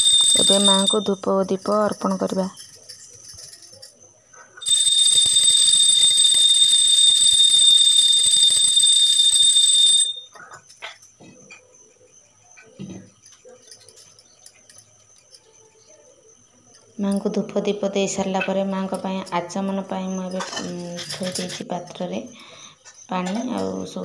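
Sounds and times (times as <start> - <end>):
hand bell ringing rapidly: 0.0 - 1.1, 4.6 - 10.2.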